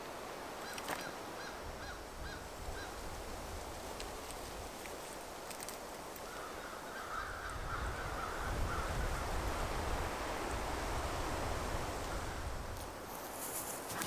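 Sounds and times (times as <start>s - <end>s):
birds calling harshly: 6.2s - 9.1s.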